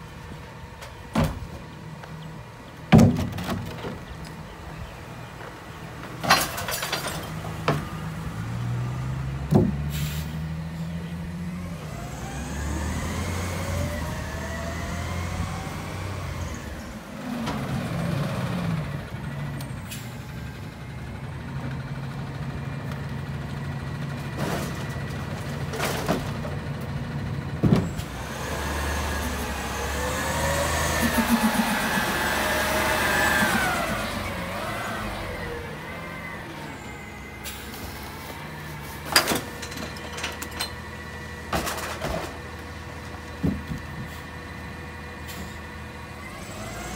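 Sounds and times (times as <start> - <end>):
diesel engine revving: 7.3 - 39.6, 42.4 - 46.9
hydraulic packer whine: 27.7 - 38.4.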